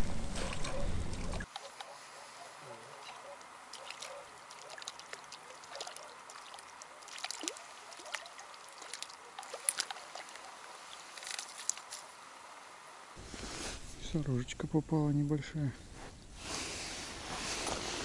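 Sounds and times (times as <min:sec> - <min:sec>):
water splashing and trickling: 0:00.0 - 0:01.8, 0:03.0 - 0:12.5.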